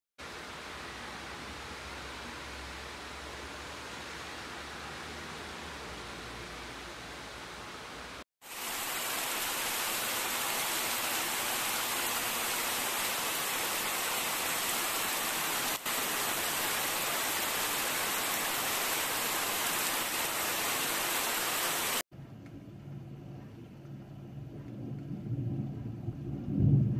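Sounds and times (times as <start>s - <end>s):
heavy rain pouring: 8.4s - 22.0s.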